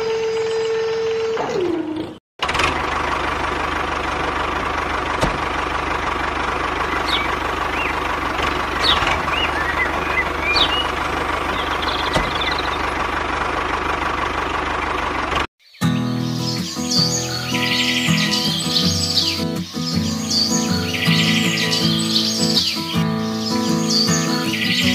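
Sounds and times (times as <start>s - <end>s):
tractor engine chugging: 2.4s - 15.5s, 16.3s - 24.9s
birds chirping: 5.2s - 13.4s, 14.6s - 24.9s.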